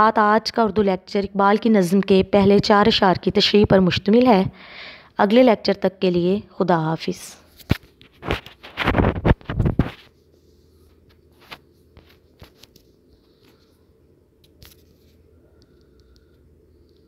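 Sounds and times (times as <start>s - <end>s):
phone handling scraping and rustling: 7.5s - 10.3s, 10.9s - 13.6s.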